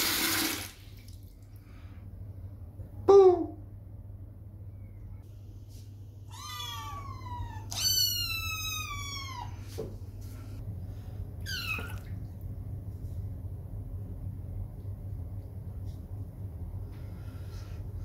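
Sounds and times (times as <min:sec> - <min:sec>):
kitten meowing: 0:06.3 - 0:09.6, 0:11.4 - 0:12.1.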